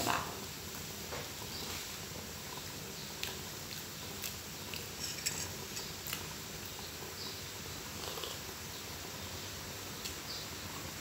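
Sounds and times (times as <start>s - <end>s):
kitchen utensils and dishes clinking: 4.9s - 6.0s.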